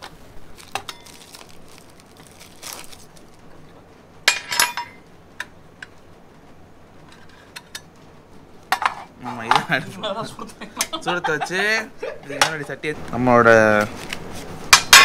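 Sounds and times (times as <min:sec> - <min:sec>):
metal cookware clinking: 0:04.3 - 0:05.0, 0:14.7 - 0:15.0.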